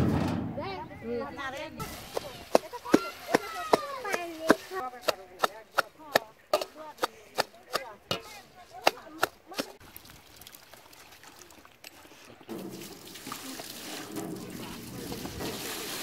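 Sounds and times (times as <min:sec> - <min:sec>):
water splashing into tray: 0:12.5 - 0:16.0.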